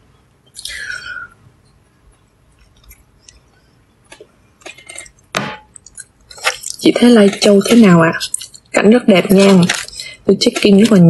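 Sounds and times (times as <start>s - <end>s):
mouth sounds of chewing: 5.8s - 8.8s.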